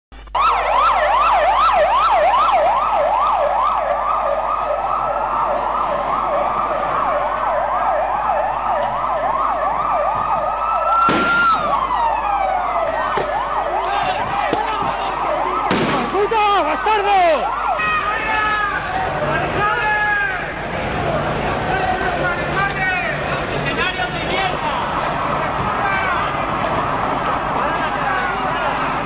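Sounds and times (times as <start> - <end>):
siren wail: 0.2 - 29.0
siren yelp: 0.2 - 29.0.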